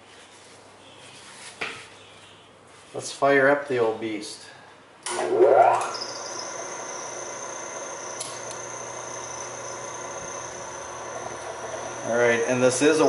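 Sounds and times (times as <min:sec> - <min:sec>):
sewing machine whining: 0:05.1 - 0:13.0.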